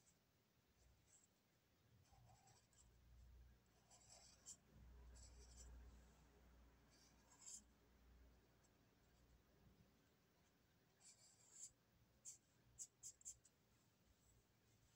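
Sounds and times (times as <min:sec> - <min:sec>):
marker scratching on paper: 0:02.0 - 0:03.0, 0:03.7 - 0:05.8, 0:06.9 - 0:07.7, 0:11.0 - 0:13.6.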